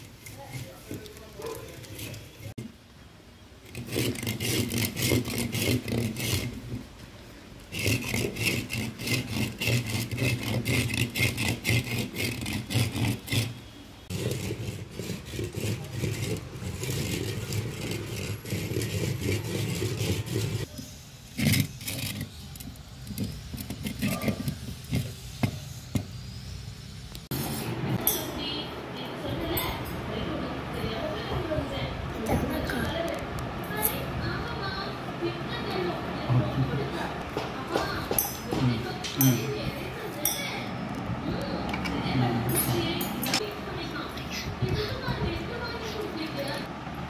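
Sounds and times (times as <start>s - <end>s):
coconut scraping on concrete: 0.0s - 2.7s, 3.6s - 26.6s.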